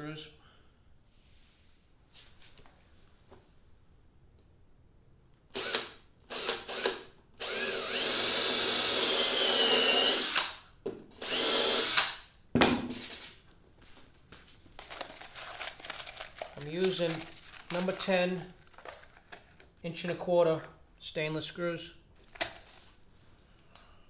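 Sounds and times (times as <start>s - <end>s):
cordless drill boring into wood: 5.6s - 10.6s, 11.2s - 12.2s.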